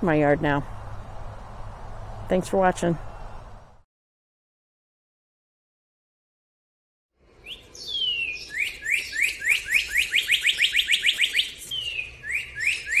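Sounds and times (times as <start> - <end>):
bird singing slurred whistles: 7.4 - 13.0.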